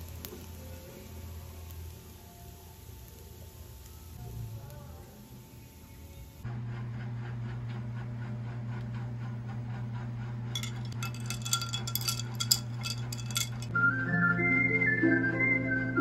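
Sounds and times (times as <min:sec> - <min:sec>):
straw clinking in glass: 0:10.6 - 0:13.7.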